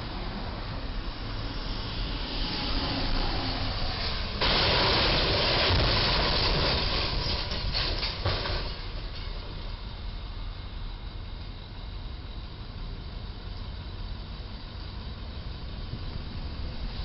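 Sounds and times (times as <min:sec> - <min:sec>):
truck scraping steel beam: 0:01.7 - 0:09.4
pieces clattering on road: 0:04.4 - 0:09.6.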